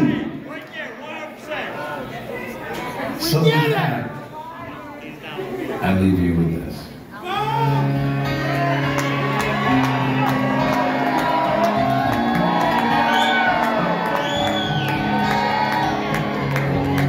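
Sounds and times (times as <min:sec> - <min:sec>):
audience shouting and whooping: 0:07.2 - 0:17.0
acoustic guitars playing: 0:07.4 - 0:17.0.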